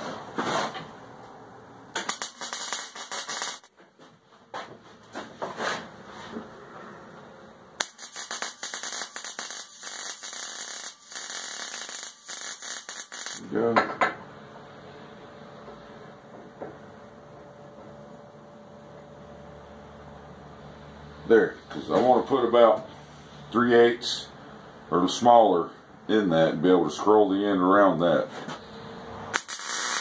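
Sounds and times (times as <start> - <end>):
welding arc crackling: 1.9 - 3.7, 7.8 - 13.6, 29.3 - 30.0.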